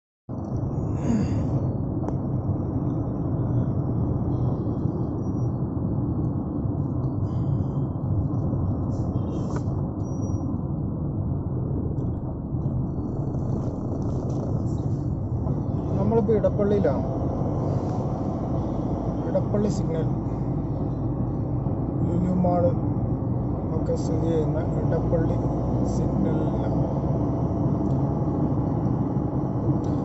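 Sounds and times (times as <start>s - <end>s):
car road and engine rumble: 0.3s - 30.0s.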